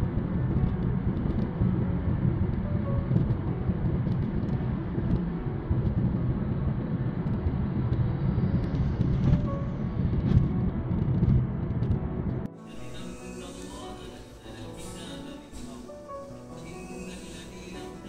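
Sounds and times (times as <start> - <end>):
car road and engine rumble: 0.0 - 12.5
quiet music: 0.0 - 18.0.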